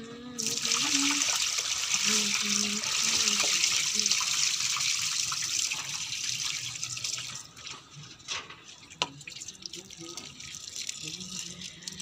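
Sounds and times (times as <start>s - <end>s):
water splashing onto concrete: 0.4s - 7.4s.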